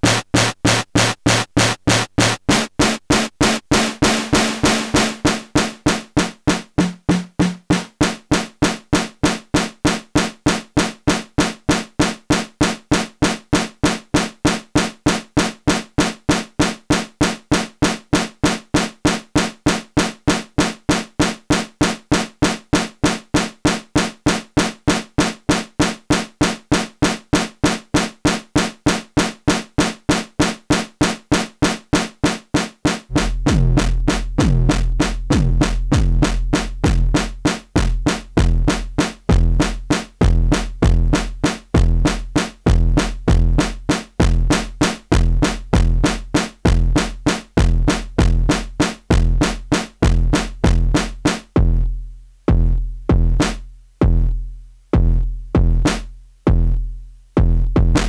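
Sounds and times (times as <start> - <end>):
synthesizer percussive hits: 0.0 - 8.8, 33.1 - 41.0.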